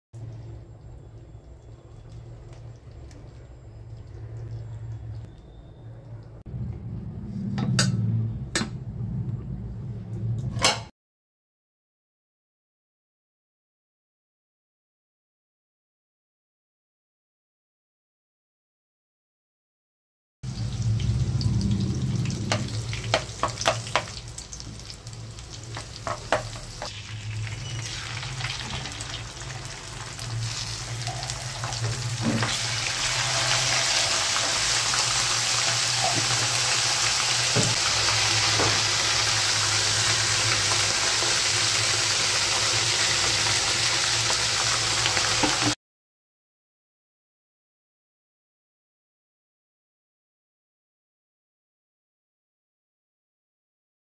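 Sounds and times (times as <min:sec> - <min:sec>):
low hum: 0:00.2 - 0:10.6
chillies sizzling in hot oil: 0:20.5 - 0:45.8.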